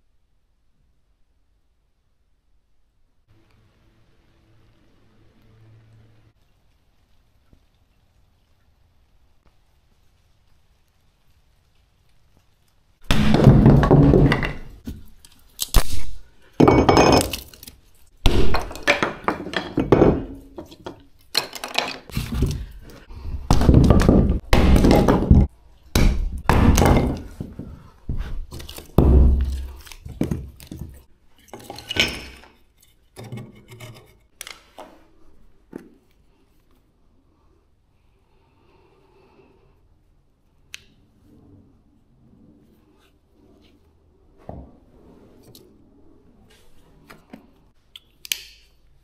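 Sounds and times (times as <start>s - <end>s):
heavy wooden thunks and knocks: 13.1s - 15.0s, 18.3s - 21.0s, 21.7s - 31.0s
clinks and snaps: 18.6s - 22.1s.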